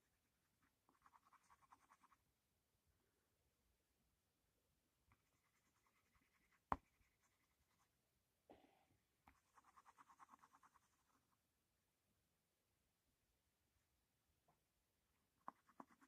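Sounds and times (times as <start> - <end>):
pencil scratching on paper: 0.0 - 2.2, 5.1 - 8.0, 9.3 - 11.4, 15.4 - 16.0.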